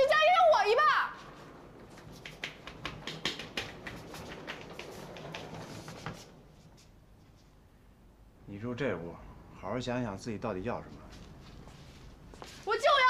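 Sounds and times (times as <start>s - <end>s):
suitcase wheels rolling: 1.2s - 6.8s
footsteps on tiled floor: 1.2s - 7.6s, 10.9s - 12.7s.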